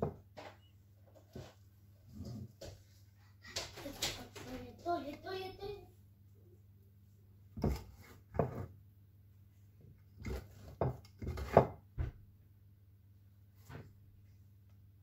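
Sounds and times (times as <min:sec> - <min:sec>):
utensil scraping ceramic dish: 0:07.6 - 0:08.7, 0:10.2 - 0:11.7.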